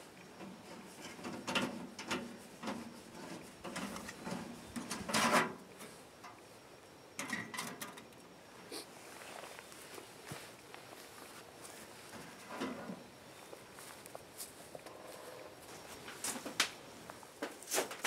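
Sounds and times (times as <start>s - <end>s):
sheet metal clinking and scraping: 0.4s - 6.0s.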